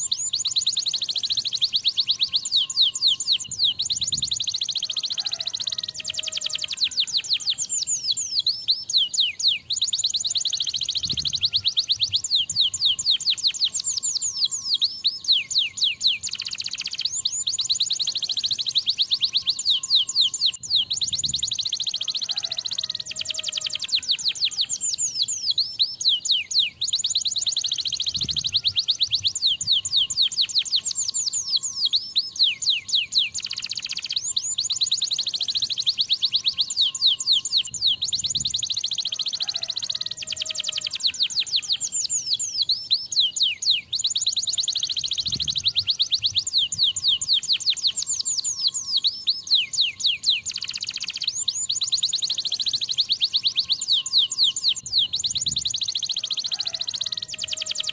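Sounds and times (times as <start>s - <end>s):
canary singing trills: 0.0s - 57.9s.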